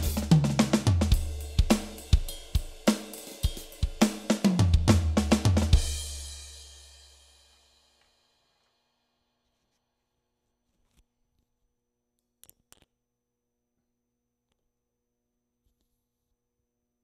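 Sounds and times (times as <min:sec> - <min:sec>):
electronic drum fill: 0:00.0 - 0:06.3.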